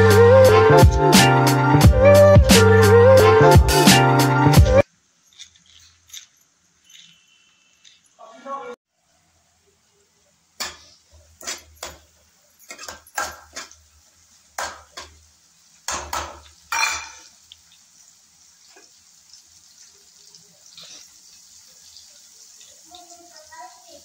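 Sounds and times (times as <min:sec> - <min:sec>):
faint frying sizzle: 0:04.8 - 0:24.0
spoon clanking against pan: 0:10.6 - 0:13.8, 0:15.9 - 0:17.3.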